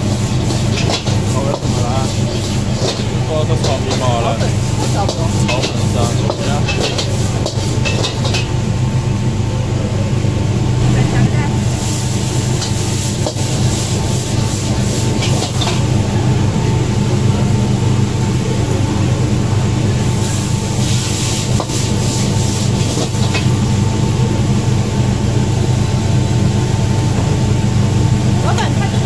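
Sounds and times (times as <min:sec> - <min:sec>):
metal ladle scraping a wok: 0:00.0 - 0:08.5
noodles sizzling: 0:00.0 - 0:08.6, 0:11.6 - 0:16.0, 0:20.0 - 0:24.0
gas burner roaring: 0:00.0 - 0:29.0.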